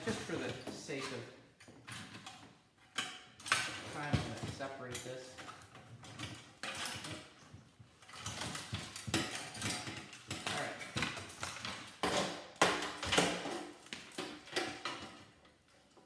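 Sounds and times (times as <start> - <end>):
metal parts clanking and scraping: 0.0 - 12.3.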